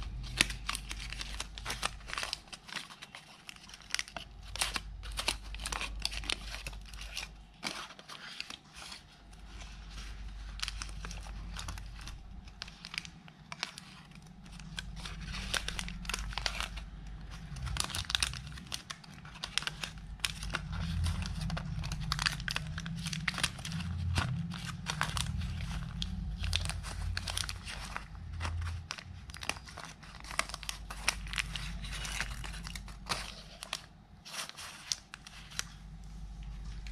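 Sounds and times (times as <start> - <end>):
foil and paper wrapper crinkling: 0.0 - 36.9.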